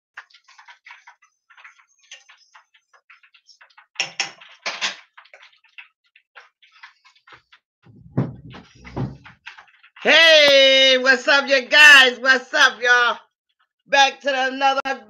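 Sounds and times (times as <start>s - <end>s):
fish frying in hot oil: 0.1s - 7.7s, 9.2s - 13.8s
dull low bumps: 7.8s - 9.4s
loud clattering: 7.9s - 9.4s.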